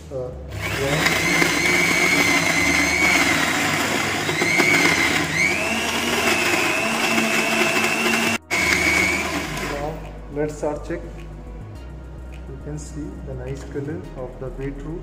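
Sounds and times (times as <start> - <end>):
mixer grinder motor whine: 0.5 - 10.1.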